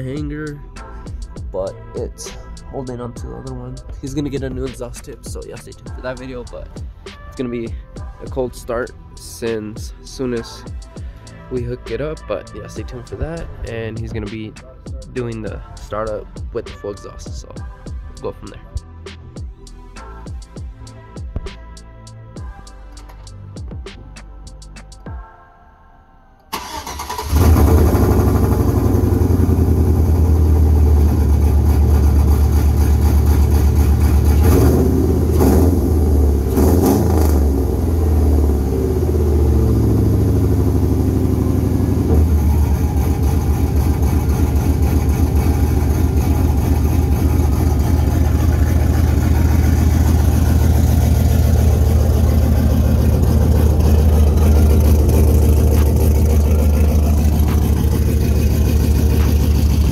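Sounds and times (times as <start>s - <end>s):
truck engine idling: 26.5s - 36.4s, 37.8s - 59.9s
truck engine starting and revving: 26.5s - 59.9s.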